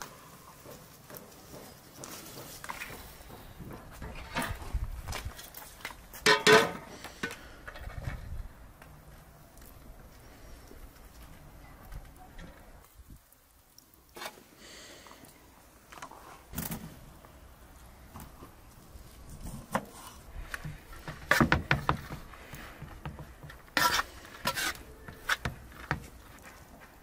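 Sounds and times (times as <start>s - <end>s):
utensils knocking on pots: 6.3s - 6.9s
skimmer scraping metal pot: 23.6s - 25.8s.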